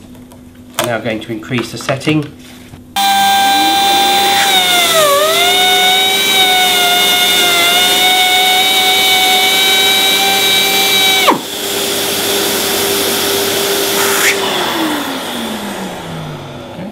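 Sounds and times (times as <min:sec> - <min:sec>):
rotary cutter grinding whine: 0:03.0 - 0:16.9.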